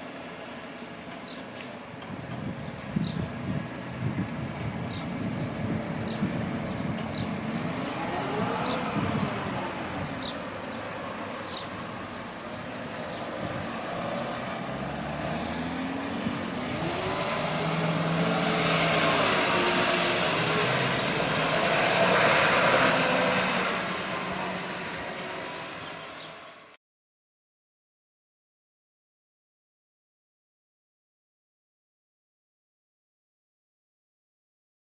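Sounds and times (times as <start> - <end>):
tyre and road noise: 0.0 - 26.7
bus engine: 0.0 - 26.8.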